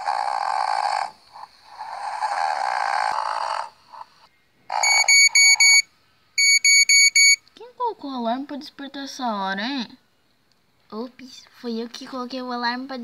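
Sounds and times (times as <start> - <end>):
child imitating snoring: 0.0 - 3.8
high electronic alarm beeps: 4.8 - 7.4.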